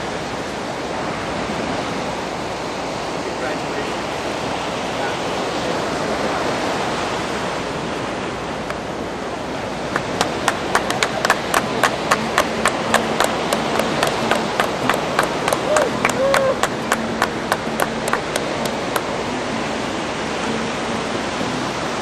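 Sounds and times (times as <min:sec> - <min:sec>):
surf breaking on beach: 0:00.0 - 0:22.0
hand clapping: 0:09.9 - 0:19.1.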